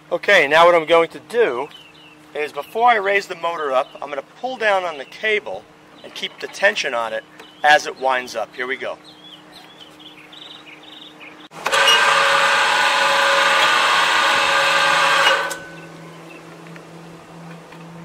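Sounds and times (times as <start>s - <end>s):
electric motor whine: 11.5s - 18.0s.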